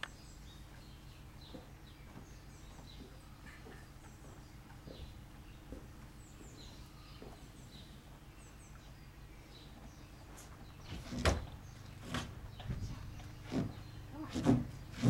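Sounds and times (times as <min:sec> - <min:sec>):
small birds chirping: 0:00.0 - 0:15.0
horse hoof thud on ramp: 0:10.8 - 0:12.9.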